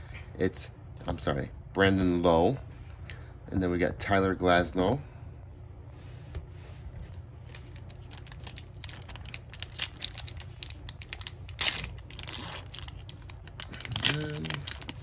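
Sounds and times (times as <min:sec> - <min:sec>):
plastic wrapper crinkling: 0:07.4 - 0:15.0
wrapper tearing: 0:07.5 - 0:15.0.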